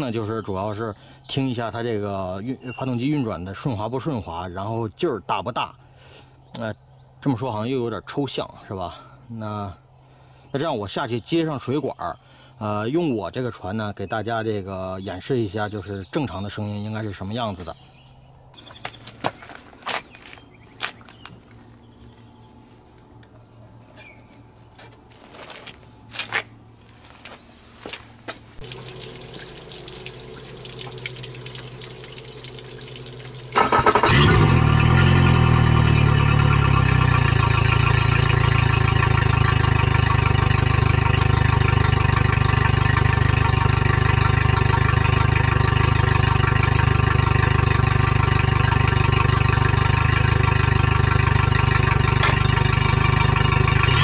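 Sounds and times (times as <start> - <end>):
hose water running: 28.6 - 35.2
outboard engine idling: 28.6 - 54.0.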